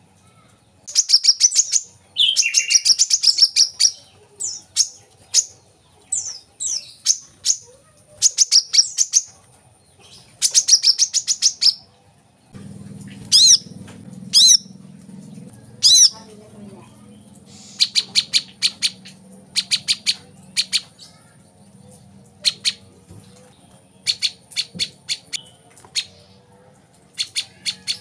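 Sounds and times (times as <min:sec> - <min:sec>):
bird chirping: 0:00.8 - 0:11.9, 0:12.6 - 0:26.5
down-slurred bird calls: 0:00.9 - 0:05.5, 0:13.0 - 0:16.4, 0:17.0 - 0:23.0, 0:23.7 - 0:26.4
low hum: 0:12.5 - 0:23.7.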